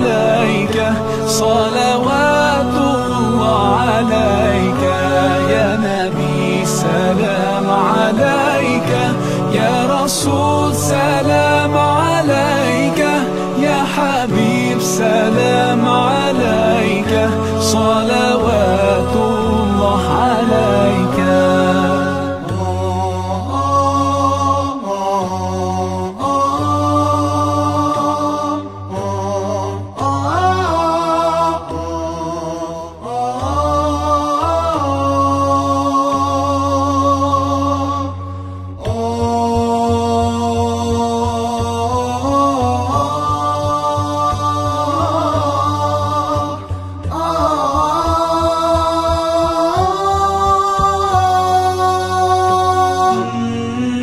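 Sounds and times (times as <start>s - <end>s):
low hummed drone: 0.0s - 34.9s
voices singing a cappella: 0.0s - 54.0s.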